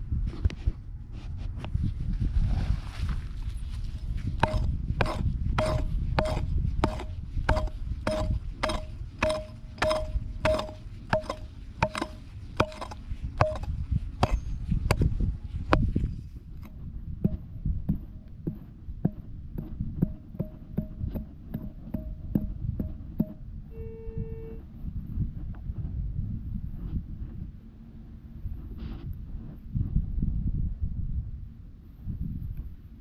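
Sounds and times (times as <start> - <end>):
metal hoe chopping hard soil: 4.3 - 23.5.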